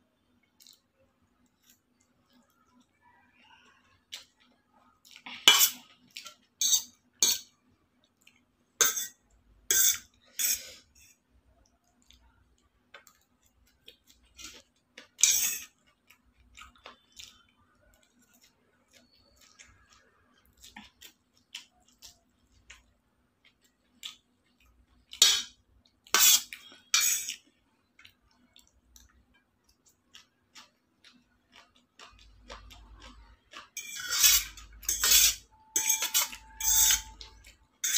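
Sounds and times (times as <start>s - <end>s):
fork clinking on metal plates: 6.6s - 7.5s, 8.8s - 10.6s, 15.2s - 15.7s, 25.2s - 25.5s, 26.2s - 27.4s, 33.8s - 37.9s.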